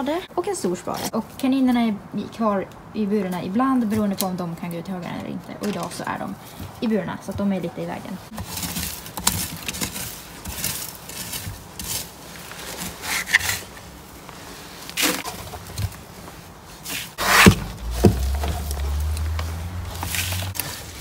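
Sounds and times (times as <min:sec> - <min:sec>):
plastic shovel scraping wood shavings: 0:08.3 - 0:21.0
low rumble: 0:17.4 - 0:20.6.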